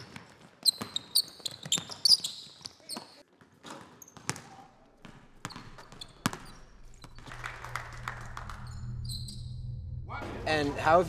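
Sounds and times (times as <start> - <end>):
basketballs bouncing on hardwood: 0.0 - 7.3
sneakers squeaking: 0.0 - 7.4, 8.5 - 9.6.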